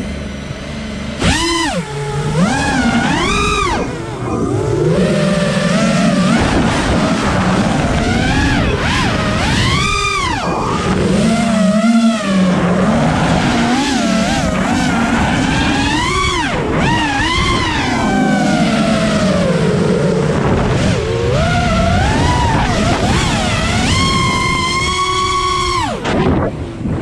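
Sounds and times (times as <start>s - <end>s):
quadcopter motors whining: 0.0s - 27.0s.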